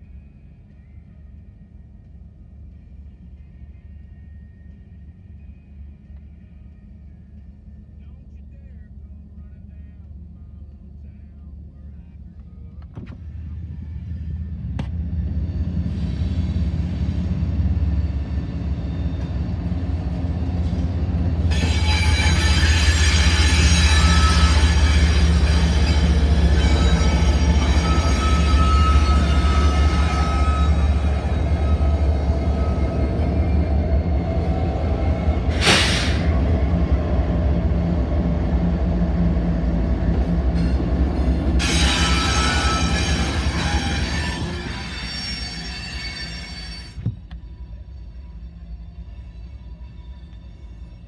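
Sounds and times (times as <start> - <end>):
diesel locomotive rumbling: 0.0 - 51.0
short loud hiss: 35.6 - 36.3.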